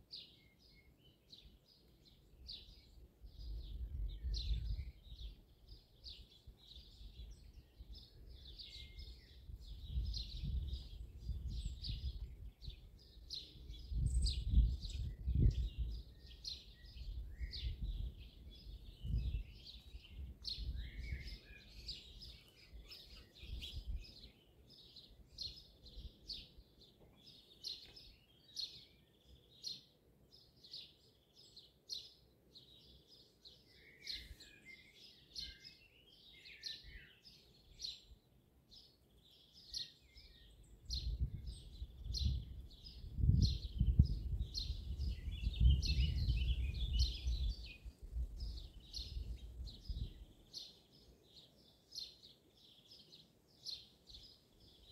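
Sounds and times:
songbirds chirping and singing: 0:00.0 - 0:54.9.

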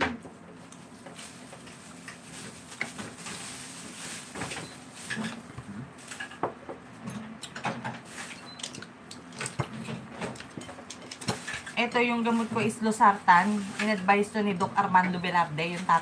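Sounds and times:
tableware clicking and clattering: 0:07.1 - 0:11.8.

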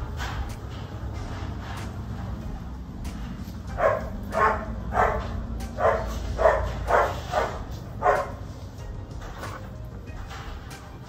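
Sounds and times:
dog barking: 0:03.8 - 0:08.5.

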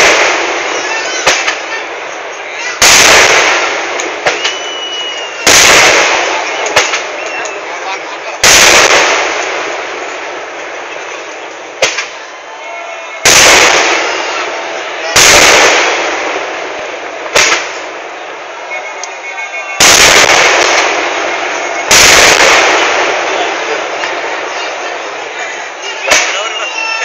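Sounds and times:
sharp short firework bangs: 0:00.0 - 0:01.8, 0:02.6 - 0:07.4, 0:08.4 - 0:10.4, 0:11.7 - 0:12.3, 0:13.2 - 0:18.1, 0:19.7 - 0:24.8, 0:26.0 - 0:26.6
heavy firework blasts: 0:00.0 - 0:27.0.

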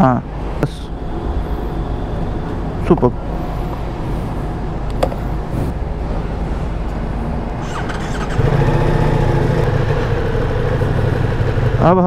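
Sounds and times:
petrol station background noise: 0:00.3 - 0:10.7
motorcycle engine starting and idling: 0:07.6 - 0:12.0.

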